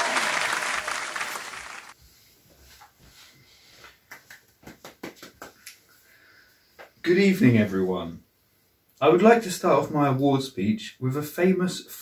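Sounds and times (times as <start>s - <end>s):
crowd applause: 0.0s - 2.0s.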